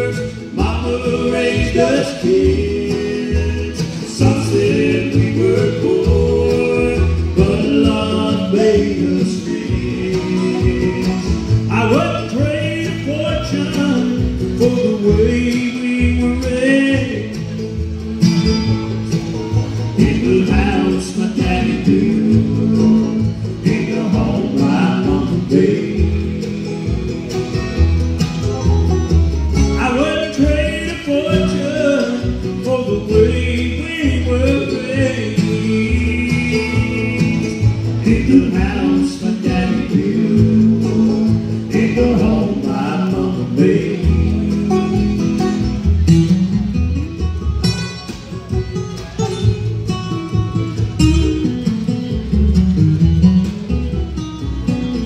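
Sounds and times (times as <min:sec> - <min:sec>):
bluegrass band playing: 0:00.0 - 0:55.0
plucked bass line: 0:00.0 - 0:55.0.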